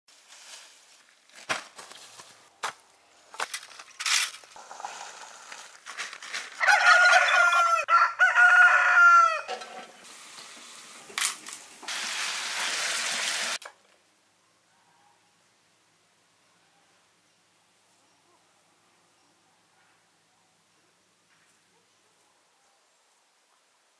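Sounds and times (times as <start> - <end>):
chicken frying in oil: 10.0 - 13.6.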